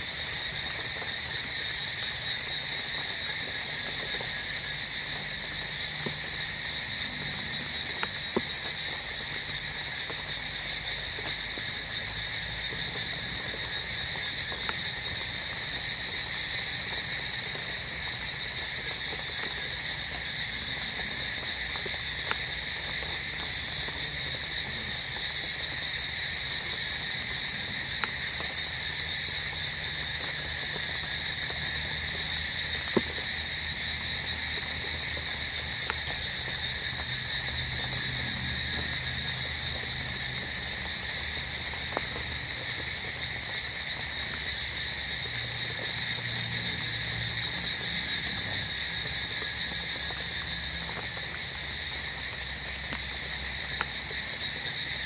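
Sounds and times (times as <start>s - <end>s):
frogs calling: 0.0s - 55.0s
insects: 0.0s - 55.0s.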